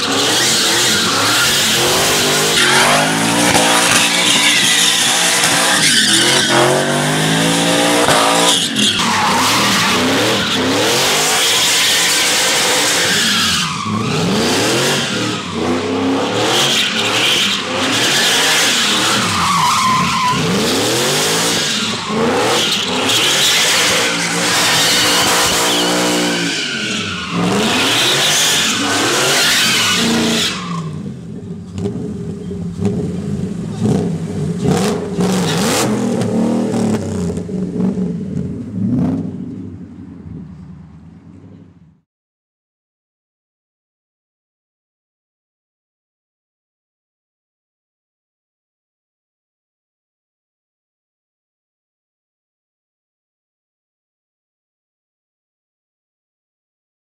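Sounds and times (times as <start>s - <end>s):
truck engine revving: 0.0s - 8.6s
tyres squealing on pavement: 0.0s - 31.1s.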